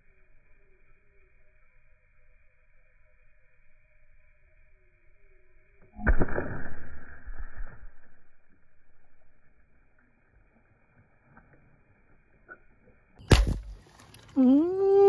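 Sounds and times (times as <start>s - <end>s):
speargun firing snap: 13.2s - 13.7s
spear splashing into water: 13.3s - 13.9s.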